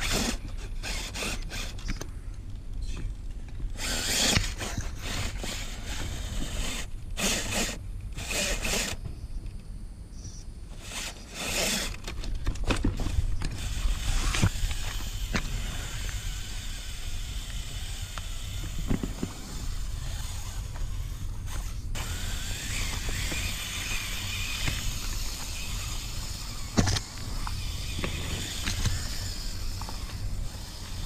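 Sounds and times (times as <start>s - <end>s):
electric motor whining: 3.8s - 9.0s, 13.4s - 31.0s.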